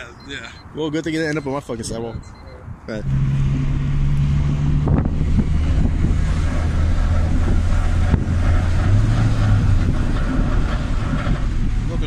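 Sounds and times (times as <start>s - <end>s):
road noise: 0.0s - 12.0s
car engine from inside cabin: 3.0s - 12.0s.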